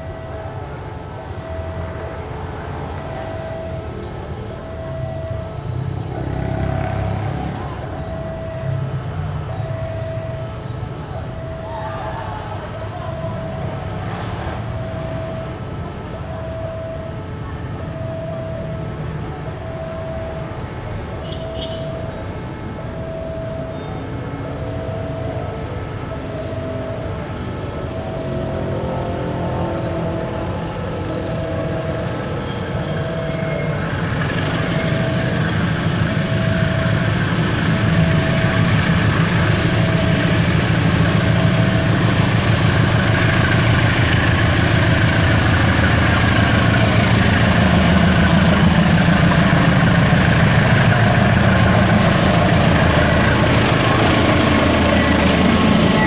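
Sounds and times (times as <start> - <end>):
level-crossing alarm beeps: 0.0 - 56.0
locomotive engine rumble: 21.8 - 56.0
train wheel noise: 24.9 - 56.0.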